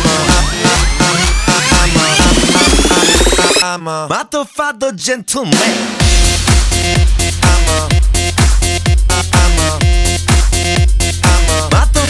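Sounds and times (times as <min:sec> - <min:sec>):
bass drum beat: 0:00.0 - 0:03.6, 0:05.6 - 0:12.0
rising synth tone: 0:00.0 - 0:03.6
electronic dance music: 0:00.0 - 0:03.7, 0:05.5 - 0:12.0.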